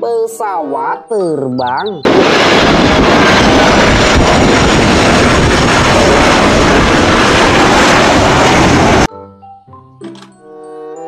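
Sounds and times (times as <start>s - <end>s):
jet engines rushing: 1.6s - 9.1s.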